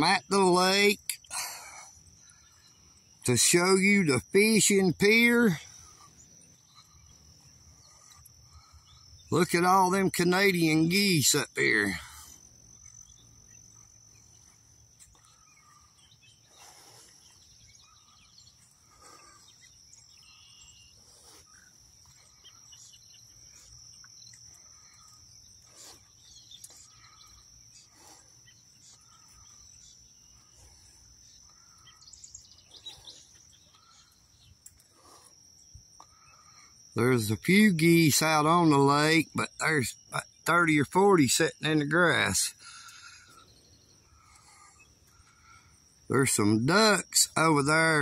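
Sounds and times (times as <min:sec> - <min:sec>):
insect chorus: 0:00.0 - 0:48.0
short bird calls: 0:11.7 - 0:24.0.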